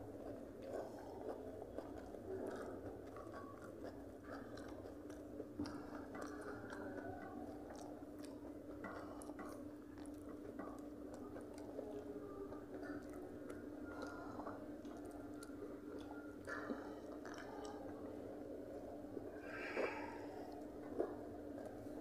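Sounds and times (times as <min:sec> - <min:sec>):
people chewing: 0:00.0 - 0:22.0
steady low hum: 0:00.0 - 0:22.0
fingers mixing rice on steel plates: 0:00.2 - 0:17.8.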